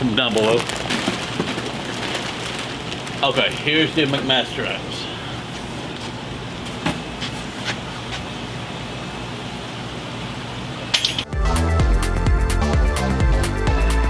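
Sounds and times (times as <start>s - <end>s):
plastic bag crinkling: 0.0s - 4.8s
electronic music with a beat: 11.3s - 14.0s.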